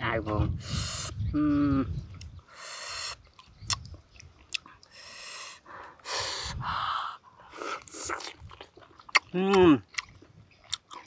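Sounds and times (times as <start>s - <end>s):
mouth clicks: 0.6s - 6.6s, 7.6s - 11.0s
man chewing and lip smacking: 2.1s - 2.4s, 3.0s - 6.0s, 7.5s - 11.0s
hissing breaths through mouth: 4.9s - 8.2s.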